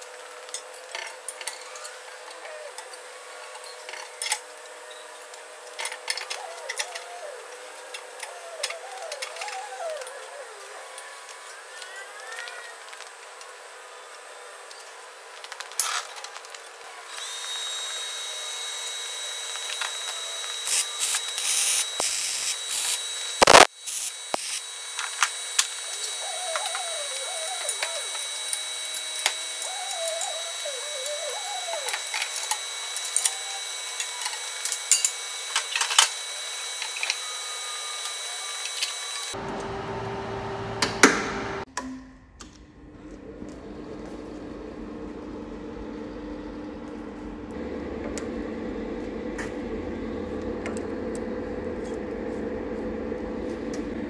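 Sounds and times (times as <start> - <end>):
power tool whining: 1.4 - 11.8, 17.1 - 41.7.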